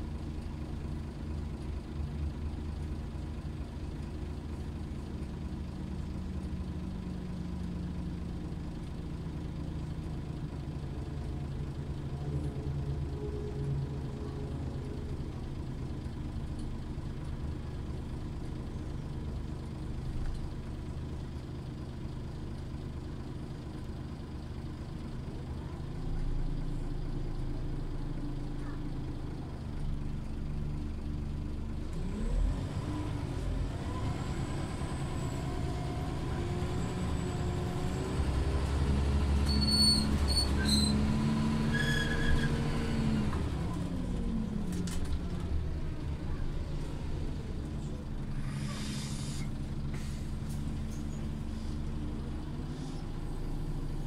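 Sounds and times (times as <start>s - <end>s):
bus engine idling and revving: 0.0s - 54.0s.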